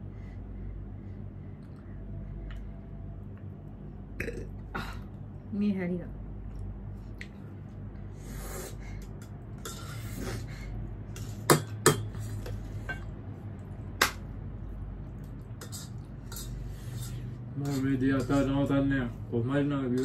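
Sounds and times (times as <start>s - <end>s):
cutlery clinking against dish: 11.1s - 13.1s, 15.6s - 18.5s.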